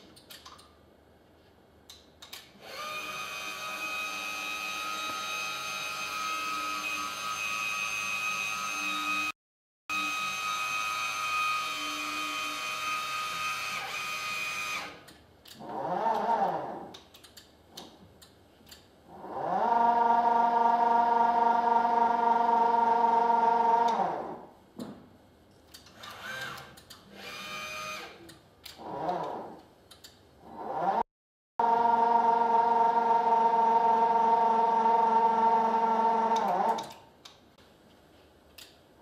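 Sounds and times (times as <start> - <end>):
electric crane motor whining: 31.6 - 36.9.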